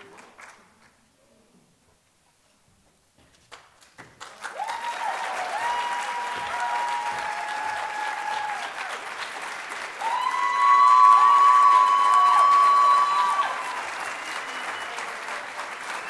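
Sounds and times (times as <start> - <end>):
audience applauding: 3.5 - 16.0
cheering whoops: 4.4 - 9.1, 9.9 - 16.0.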